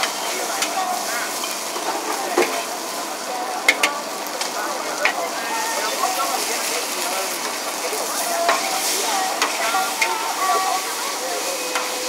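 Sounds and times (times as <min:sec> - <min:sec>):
metal cooking tools clanking: 0:00.0 - 0:02.7
noodles sizzling in wok: 0:00.0 - 0:12.0.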